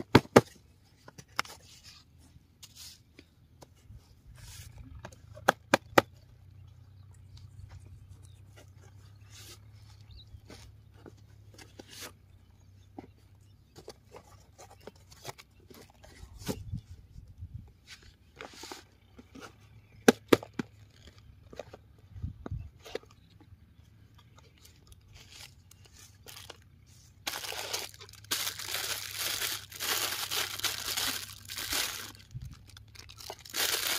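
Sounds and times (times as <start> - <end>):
cardboard rustling: 27.2 - 33.9.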